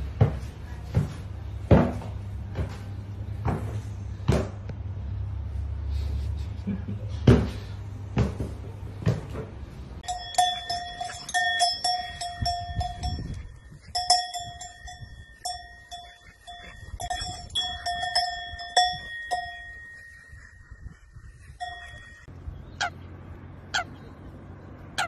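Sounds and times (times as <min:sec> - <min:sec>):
cow bell clanking: 0:10.0 - 0:22.3
sharp bird calls: 0:19.6 - 0:24.3.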